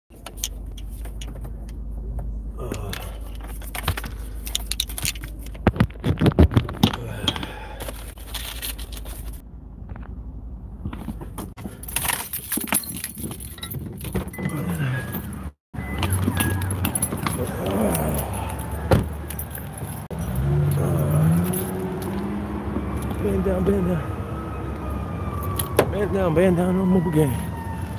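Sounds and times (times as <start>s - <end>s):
phone handling clicks and rattles: 2.8s - 8.0s.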